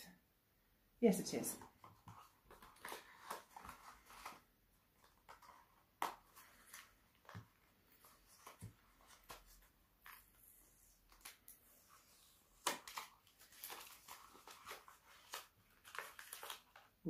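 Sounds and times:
paper and plastic wrapping crinkling: 0:02.0 - 0:10.3, 0:12.6 - 0:17.0
wrapping crackles: 0:12.6 - 0:17.0.

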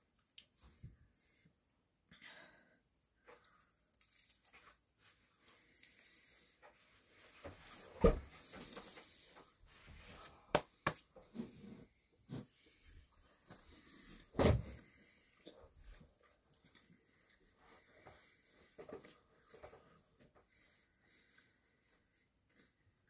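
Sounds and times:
clothing rustle: 0:03.4 - 0:10.5.

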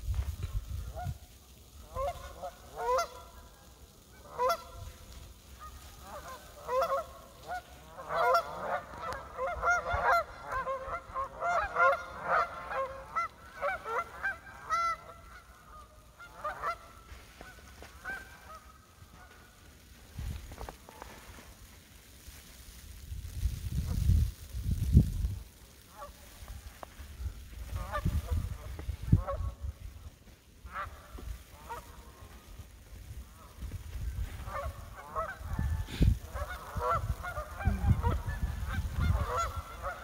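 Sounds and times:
geese honking: 0:00.6 - 0:22.4, 0:25.6 - 0:40.0.

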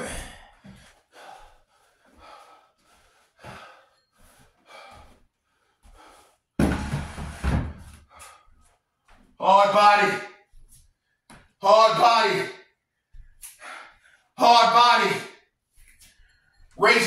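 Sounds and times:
man breathing hard: 0:00.0 - 0:06.6, 0:07.9 - 0:08.8, 0:13.1 - 0:14.4
chair thumping and scraping on floor: 0:06.6 - 0:08.0.

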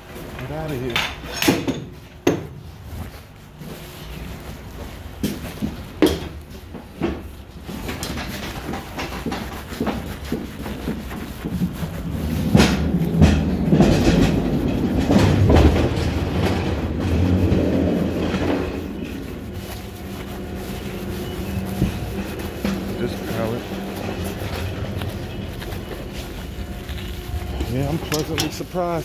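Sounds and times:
wheels rolling over steel plate: 0:11.5 - 0:25.6.

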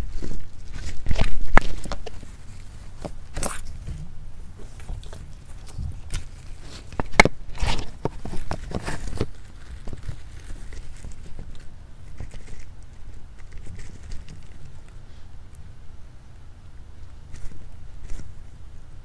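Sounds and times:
small claws scrabbling: 0:00.0 - 0:15.0.

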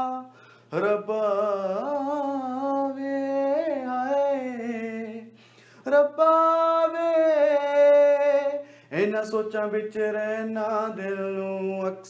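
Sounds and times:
man singing unaccompanied: 0:00.0 - 0:12.0
singer breathing: 0:00.3 - 0:00.8, 0:05.3 - 0:05.9, 0:08.6 - 0:09.0.

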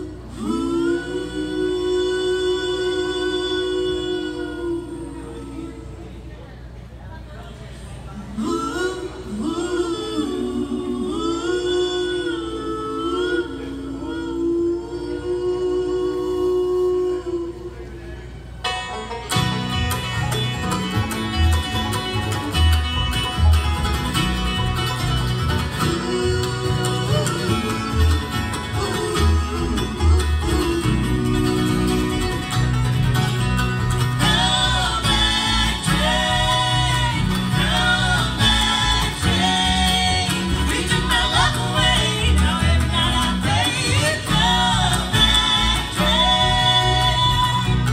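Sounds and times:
people singing: 0:00.0 - 0:05.9, 0:08.3 - 0:17.6, 0:25.6 - 0:32.7, 0:33.9 - 0:47.9
bluegrass band playing: 0:18.6 - 0:47.9.

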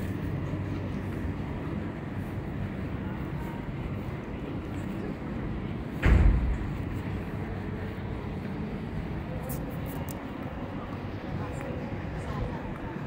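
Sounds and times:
city ambience rumble: 0:00.0 - 0:13.0
loud low thump: 0:06.0 - 0:06.8.

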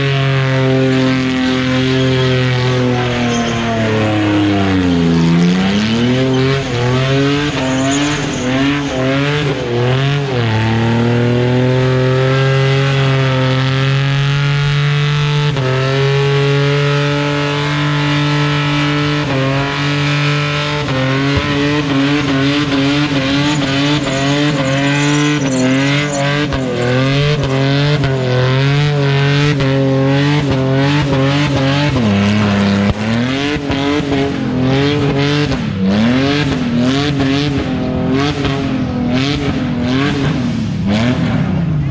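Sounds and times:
car engine revving: 0:00.0 - 0:41.9
tyres squealing: 0:01.7 - 0:10.8, 0:21.8 - 0:29.6.

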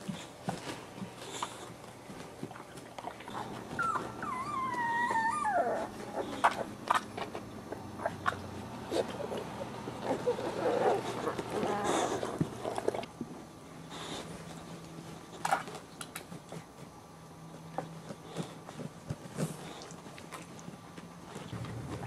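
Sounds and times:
puppies grunting and whimpering: 0:03.2 - 0:07.2, 0:07.8 - 0:13.1.

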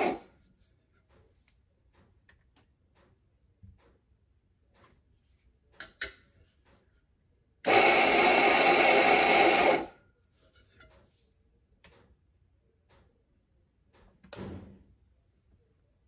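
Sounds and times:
coffee grinder motor grinding: 0:00.0 - 0:00.2, 0:07.6 - 0:09.9.

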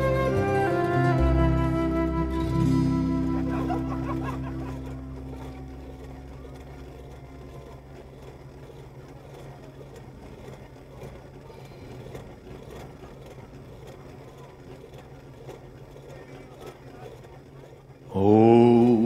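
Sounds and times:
flute tune: 0:00.0 - 0:06.1
faint street noise: 0:00.0 - 0:19.0
vehicle engine idling: 0:00.0 - 0:19.0.

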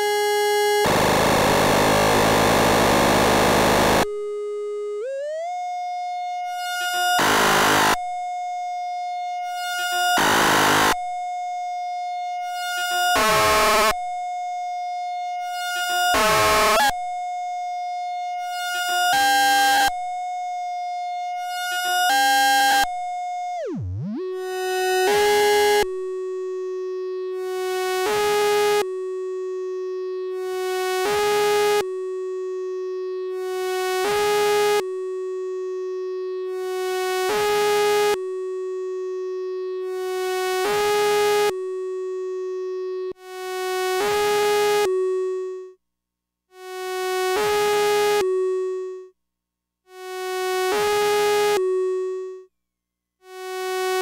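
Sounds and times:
synthesizer drone: 0:00.8 - 0:04.0
buzzy synth pulse: 0:00.8 - 0:04.2.

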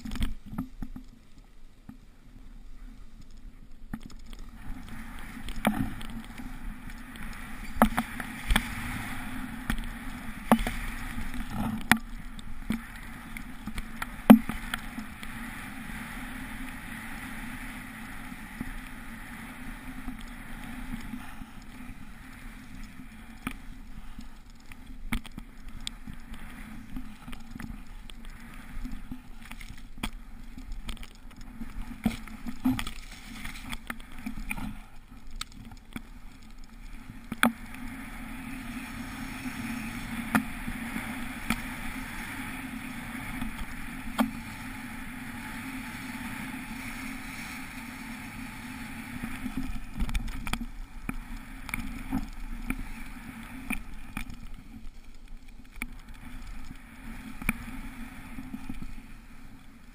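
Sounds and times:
snowboard rushing through snow: 0:04.6 - 0:11.8, 0:12.8 - 0:22.8, 0:37.7 - 0:50.0.

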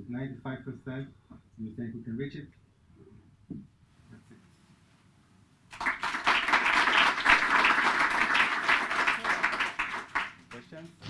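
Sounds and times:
audience applauding: 0:05.7 - 0:10.7.

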